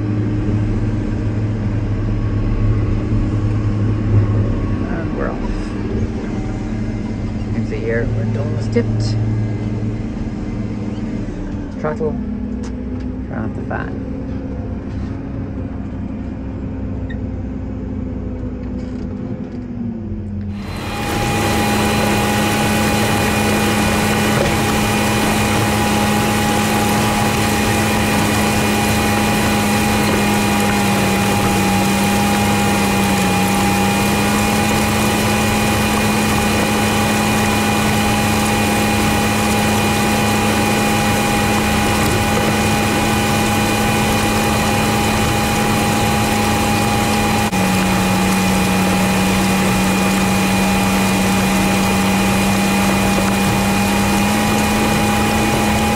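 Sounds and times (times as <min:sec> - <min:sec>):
tractor engine drone: 0:00.0 - 0:55.9
seed drill whine: 0:20.4 - 0:55.9.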